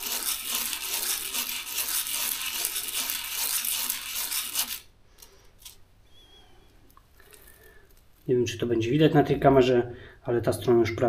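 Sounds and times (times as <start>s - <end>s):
metal washer scraping on sandpaper: 0.0s - 4.9s.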